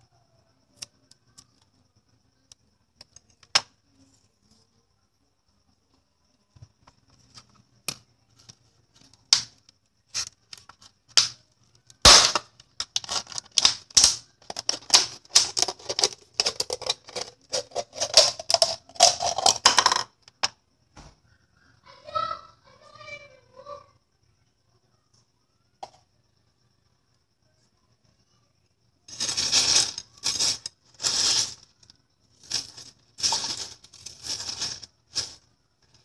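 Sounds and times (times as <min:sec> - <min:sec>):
stones clattering on plastic and ceramic: 0:06.8 - 0:20.6, 0:29.1 - 0:36.0.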